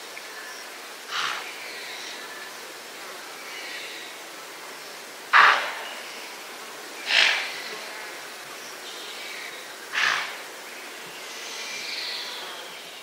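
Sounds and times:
faint birds: 0.0 - 13.0
faint insects: 0.0 - 13.0
antelope alarm snorts: 10.0 - 10.3.

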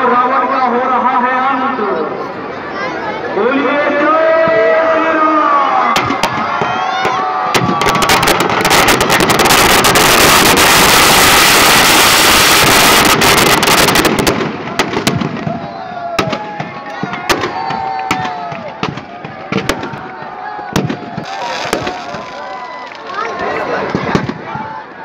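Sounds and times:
crowd shouting: 2.0 - 9.2, 14.5 - 25.0
firecrackers crackling and banging: 5.9 - 24.5.

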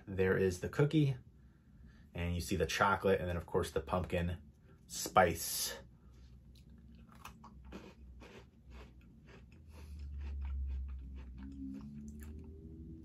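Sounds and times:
biting a crisp cookie: 6.5 - 12.8
chewing crunches: 6.5 - 12.8.

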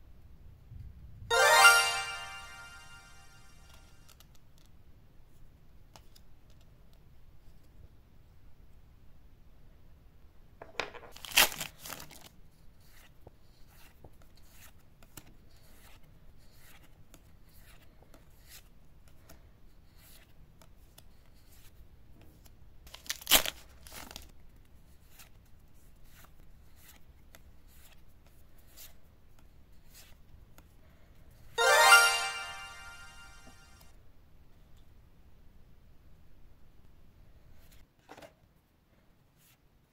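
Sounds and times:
foil pack tearing with crackle: 11.2 - 12.3, 23.0 - 24.2.

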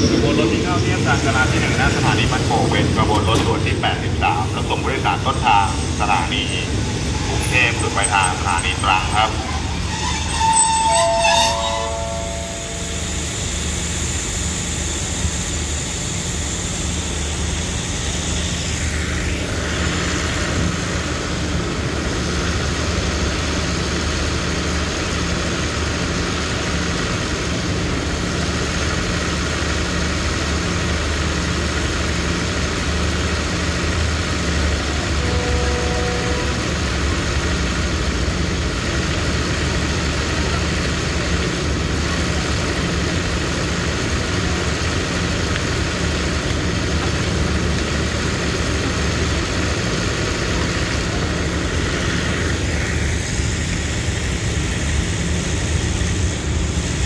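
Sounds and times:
diesel engine idling: 0.0 - 10.7
faint tone: 4.6 - 14.8.

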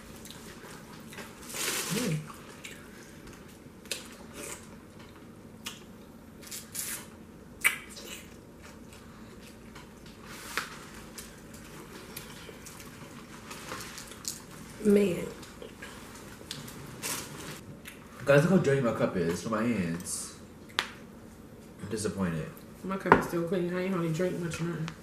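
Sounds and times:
wet eating sounds: 0.0 - 18.2.

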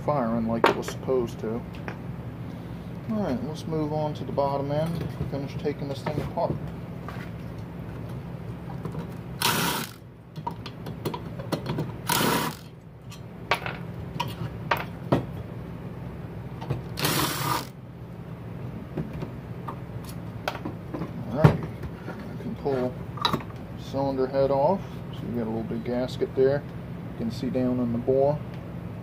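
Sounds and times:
cordless drill spinning bolts: 9.4 - 10.0, 12.0 - 12.7, 17.0 - 17.7.

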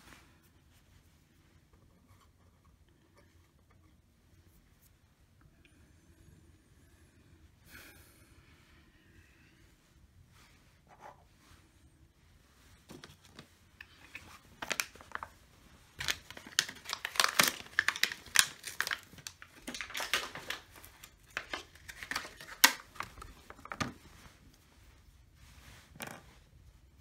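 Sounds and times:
wipes and foil packets crinkling: 12.6 - 26.0.

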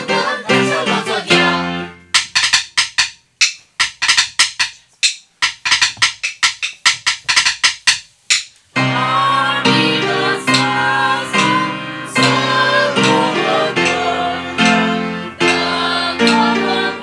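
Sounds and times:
music with singing: 0.0 - 1.9, 8.8 - 17.0
drum struck with sticks: 2.1 - 8.6, 10.5 - 10.8, 11.4 - 17.0.

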